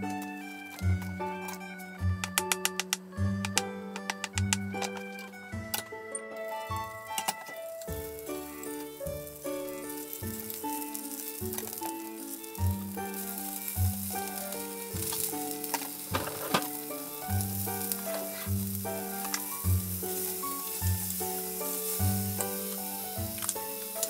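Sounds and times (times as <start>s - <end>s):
background music with bass: 0.0s - 7.2s
shrimp and mushrooms sizzling: 0.0s - 24.0s
chopsticks stirring in a pan: 6.2s - 24.0s.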